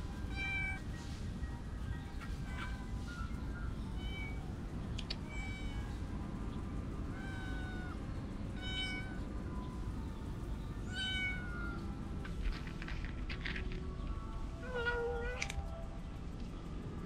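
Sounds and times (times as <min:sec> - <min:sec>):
low background rumble: 0:00.0 - 0:17.0
cat meowing: 0:08.6 - 0:09.2, 0:10.9 - 0:11.8, 0:14.6 - 0:15.6.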